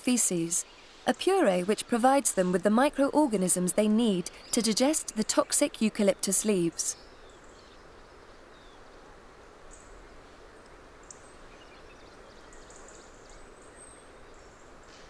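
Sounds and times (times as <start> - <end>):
soft outdoor hiss: 0.0 - 15.0.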